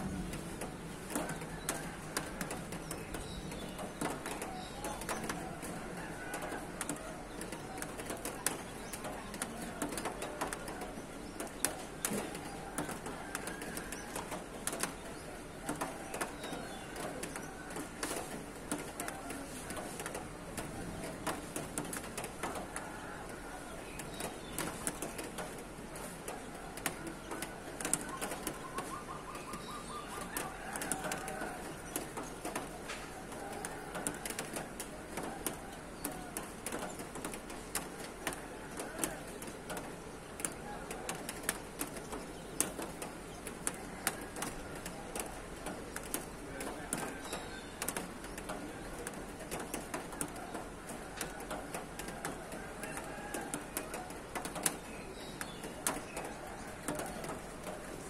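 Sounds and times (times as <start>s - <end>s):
birds calling: 23.2s - 58.0s.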